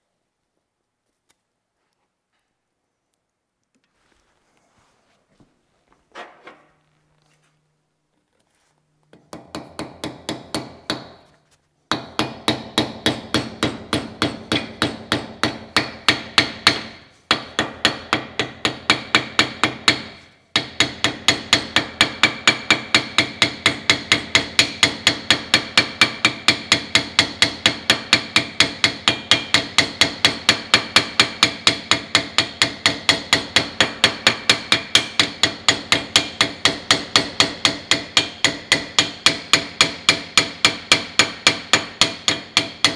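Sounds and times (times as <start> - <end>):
hammer ringing on hot steel: 11.9 - 42.9.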